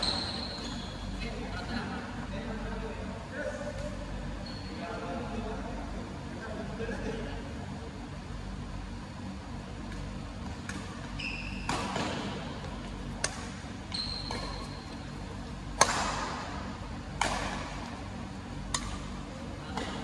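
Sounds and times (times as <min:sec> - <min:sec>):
shoes squeaking on court floor: 0:00.0 - 0:01.2, 0:04.4 - 0:04.8, 0:10.5 - 0:13.2, 0:13.8 - 0:15.1
rackets hitting shuttlecock: 0:13.2 - 0:13.6, 0:14.2 - 0:15.0, 0:15.7 - 0:17.9, 0:18.6 - 0:20.0.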